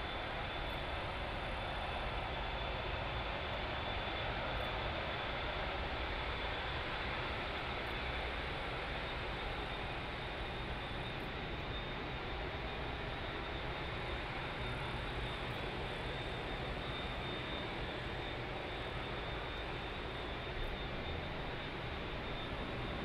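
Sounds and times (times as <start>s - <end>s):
jet engines roaring: 4.8s - 23.0s.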